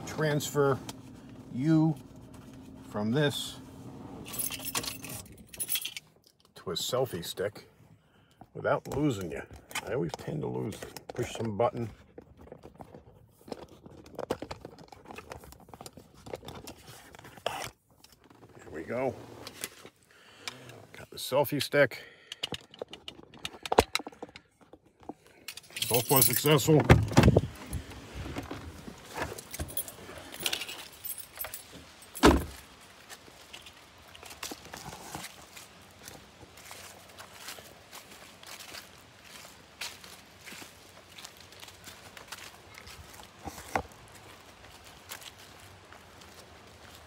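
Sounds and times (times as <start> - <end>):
keys clicking and rattling: 4.3 - 6.1, 25.4 - 26.7, 29.4 - 32.4
car door shutting: 26.7 - 29.7, 32.2 - 32.6.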